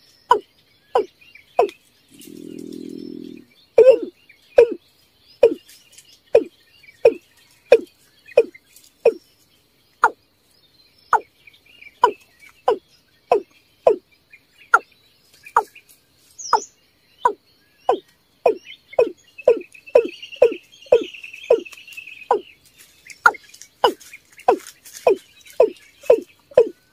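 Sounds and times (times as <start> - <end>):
watercock calls: 1.0 - 4.8, 5.4 - 5.6, 6.4 - 9.2, 12.0 - 14.0, 15.5 - 15.7, 16.5 - 22.4, 23.2 - 26.8.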